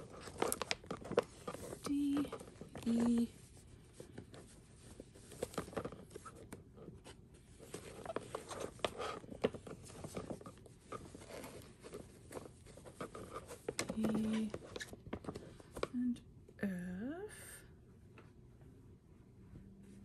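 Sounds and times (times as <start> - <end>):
plastic folder pockets crinkling: 0.0 - 3.4, 4.0 - 15.9.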